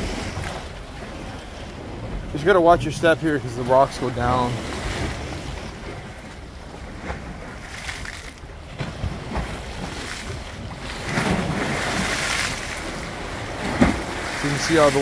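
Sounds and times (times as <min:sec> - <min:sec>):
waves splashing on rocks: 0:00.0 - 0:15.0
wind rumbling on microphone: 0:00.0 - 0:15.0.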